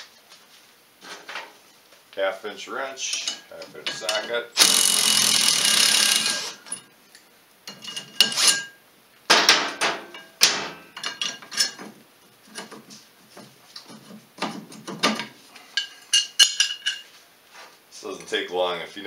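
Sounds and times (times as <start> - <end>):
metal tools clinking: 3.1 - 6.9, 15.8 - 17.1.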